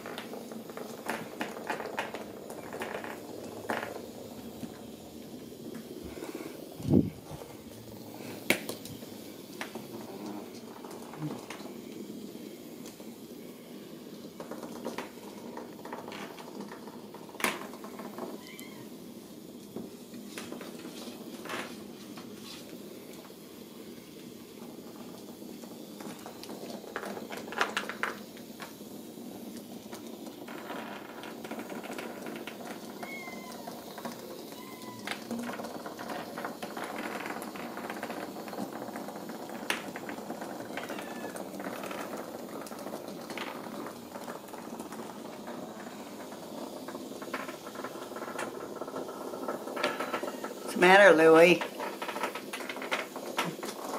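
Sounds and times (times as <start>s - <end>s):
plastic toys knocking on tile floor: 0.0s - 53.9s
kittens meowing faintly: 33.0s - 33.8s, 34.5s - 35.1s, 40.7s - 41.4s.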